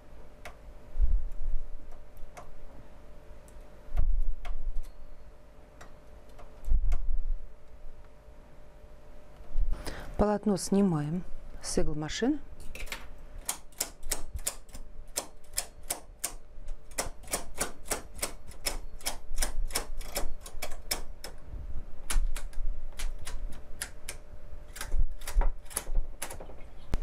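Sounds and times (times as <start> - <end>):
knitting machine needles clicking: 13.4 - 21.4.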